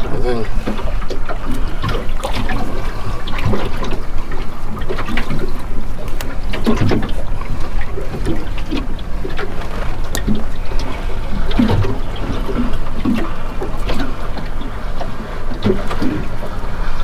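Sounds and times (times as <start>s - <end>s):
water lapping around a boat: 0.0s - 17.0s.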